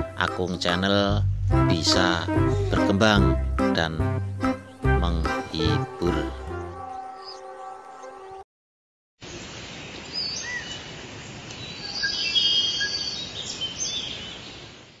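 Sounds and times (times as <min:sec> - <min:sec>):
birds chirping and whistling: 0:04.3 - 0:08.0, 0:11.6 - 0:14.5.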